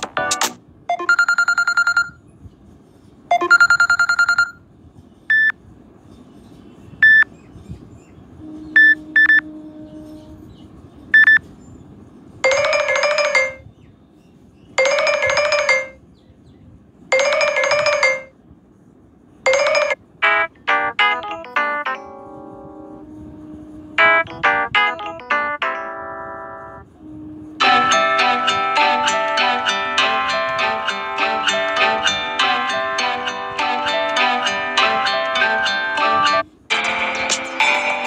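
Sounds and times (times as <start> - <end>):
pulsing bell ringtone: 0.9 - 2.2, 3.3 - 4.6, 12.4 - 13.6, 14.8 - 16.0, 17.2 - 18.3, 19.5 - 20.0
warbling ringtone: 0.9 - 2.2, 3.3 - 4.6, 12.4 - 13.6, 14.8 - 16.0, 17.1 - 18.3, 19.5 - 23.0, 24.0 - 26.8
electronic beeps: 3.3 - 4.6, 5.3 - 5.5, 7.0 - 7.3, 11.2 - 11.4.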